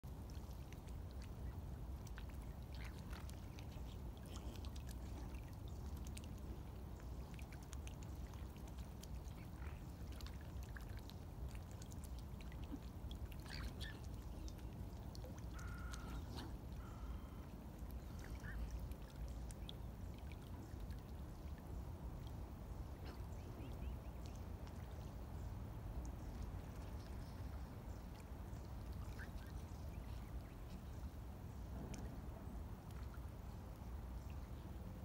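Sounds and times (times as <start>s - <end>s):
steady low rumble: 0.0s - 35.0s
water trickling and splashing: 0.0s - 35.0s
short bird calls: 15.5s - 17.5s.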